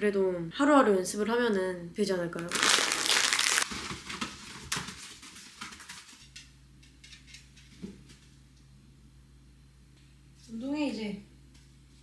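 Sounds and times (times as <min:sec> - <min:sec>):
plastic snack bag crinkling: 0:02.4 - 0:06.1.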